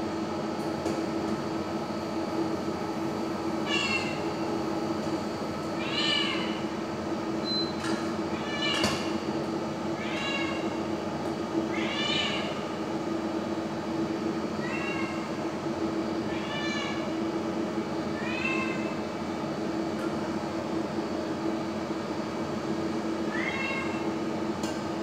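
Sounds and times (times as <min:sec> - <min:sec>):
cat meowing: 0:03.7 - 0:04.2, 0:05.8 - 0:06.6, 0:10.0 - 0:10.7, 0:11.7 - 0:12.6, 0:14.6 - 0:15.2, 0:16.3 - 0:17.0, 0:18.2 - 0:18.9, 0:23.3 - 0:24.0.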